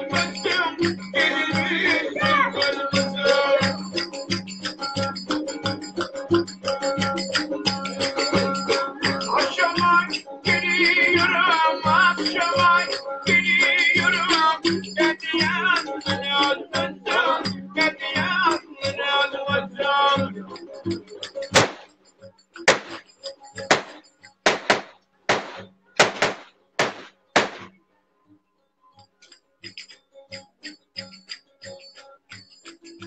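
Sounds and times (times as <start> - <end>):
sharp clicking percussion: 0.0 - 17.2, 20.5 - 27.8, 29.2 - 33.0.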